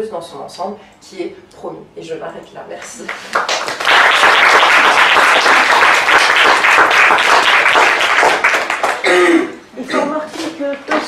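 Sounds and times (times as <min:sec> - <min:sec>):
audience applauding: 0:03.1 - 0:09.1.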